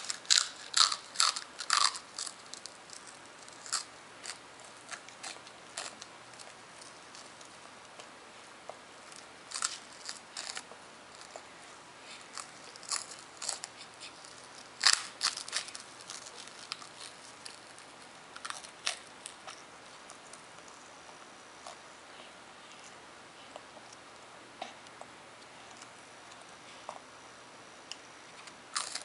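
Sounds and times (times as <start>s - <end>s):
baby gnawing crunchy rusk: 0.0s - 8.1s, 9.0s - 11.5s, 12.1s - 21.8s, 28.4s - 29.0s.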